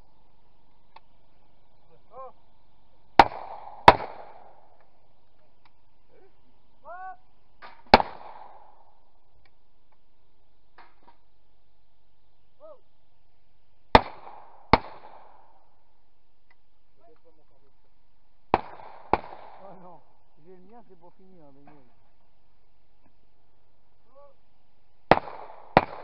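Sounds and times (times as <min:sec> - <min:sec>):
shotgun shots: 0:03.2 - 0:04.8, 0:07.6 - 0:09.0, 0:13.9 - 0:15.6, 0:18.5 - 0:20.0, 0:25.1 - 0:26.0.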